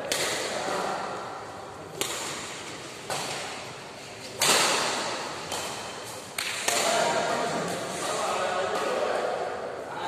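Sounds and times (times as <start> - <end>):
badminton racket hitting shuttlecock: 2.0 - 3.6.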